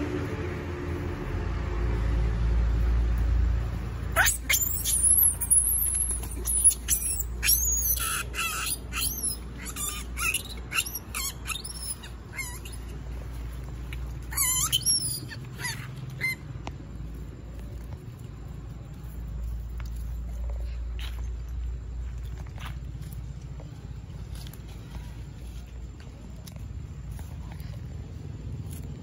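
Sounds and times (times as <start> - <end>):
monkey screaming: 4.1 - 13.0, 14.2 - 16.4.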